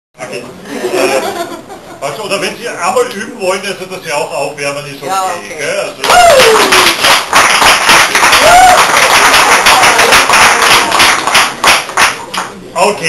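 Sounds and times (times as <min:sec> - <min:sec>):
shouted cheer: 0:06.0 - 0:07.0, 0:08.2 - 0:10.9
audience clapping: 0:06.0 - 0:12.6.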